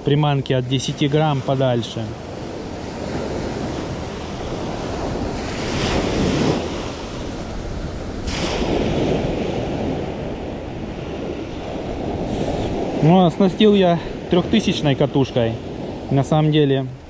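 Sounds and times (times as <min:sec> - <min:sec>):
sea surf washing in: 0:00.0 - 0:17.0
wind buffeting microphone: 0:00.0 - 0:17.0.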